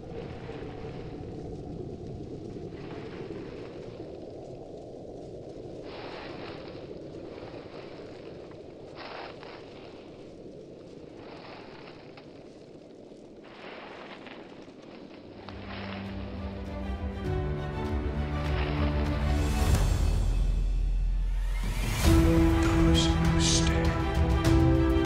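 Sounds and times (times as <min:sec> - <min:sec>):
low rumbling noise: 0:00.0 - 0:09.0.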